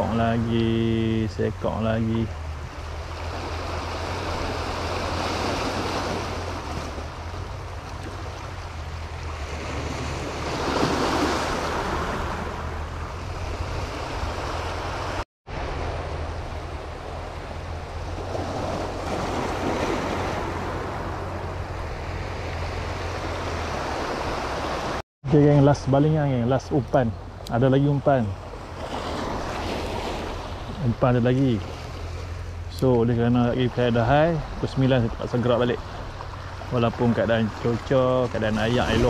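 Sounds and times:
wind rumble on microphone: 1.9s - 25.0s
small sea waves washing in: 2.4s - 25.0s, 28.4s - 32.7s, 34.2s - 39.0s.

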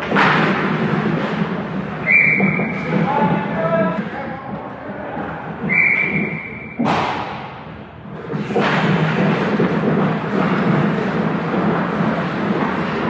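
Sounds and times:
skates scraping on ice: 0.0s - 7.4s, 8.0s - 13.0s
whistle blowing: 2.0s - 2.8s, 5.6s - 6.8s
sharp impact crack: 6.8s - 7.6s.

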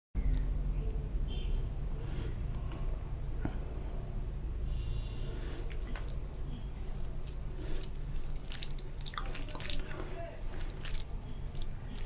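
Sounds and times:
fingers squishing wet rice: 5.6s - 12.0s.

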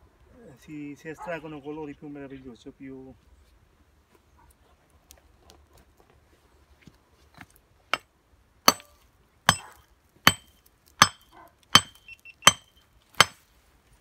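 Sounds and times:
hammer striking rock: 8.7s - 8.9s, 9.5s - 13.4s.

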